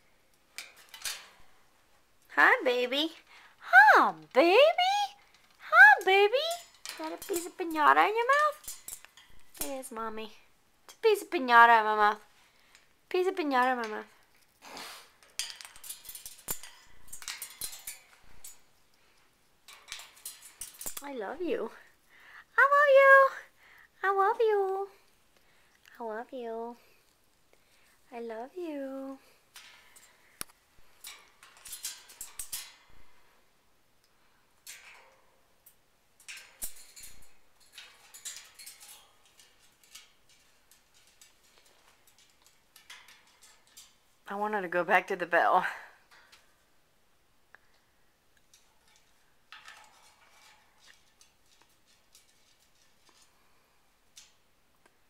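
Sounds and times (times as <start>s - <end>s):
parrot rustling in cage: 0.4s - 2.0s, 4.3s - 10.6s, 11.7s - 22.0s, 29.2s - 33.5s, 34.5s - 45.3s, 48.4s - 54.5s.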